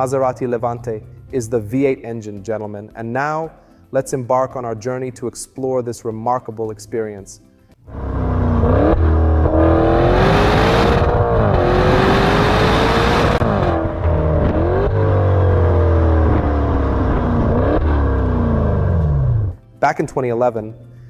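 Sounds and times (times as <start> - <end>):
car exhaust accelerating: 7.9 - 19.6
engine downshifts: 7.9 - 19.6.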